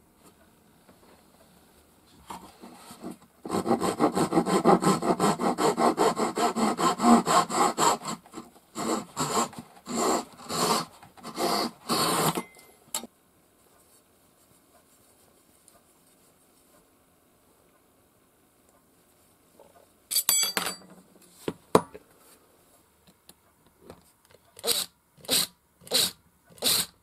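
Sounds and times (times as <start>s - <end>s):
hand saw rasping through wood: 3.0s - 12.4s.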